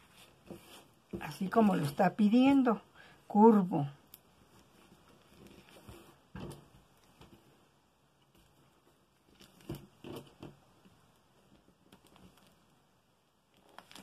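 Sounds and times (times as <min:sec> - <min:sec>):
paper and fabric rustling: 0:00.0 - 0:02.4, 0:04.4 - 0:07.5.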